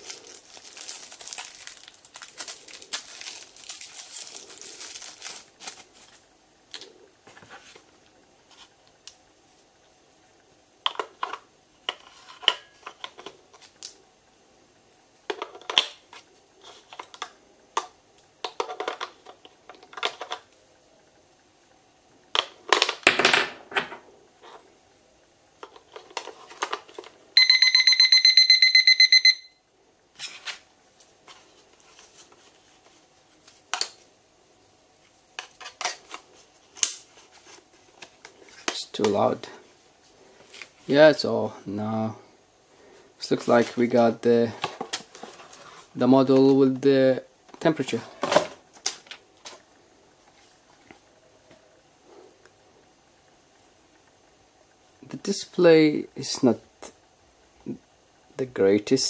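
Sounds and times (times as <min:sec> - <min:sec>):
alarm clock pulsing beep: 0:27.4 - 0:29.6.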